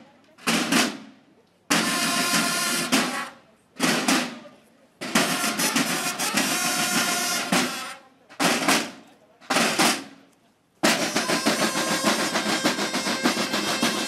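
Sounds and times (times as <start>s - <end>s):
snare drums: 0.4s - 14.0s
bugles playing: 1.7s - 4.2s, 5.0s - 9.0s, 10.8s - 14.0s.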